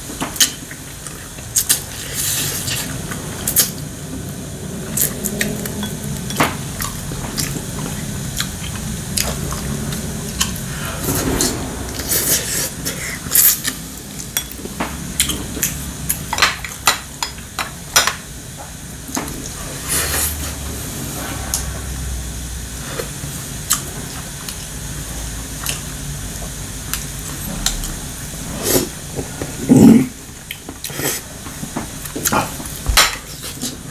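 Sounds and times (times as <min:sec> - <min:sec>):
chewing: 0:06.8 - 0:10.8.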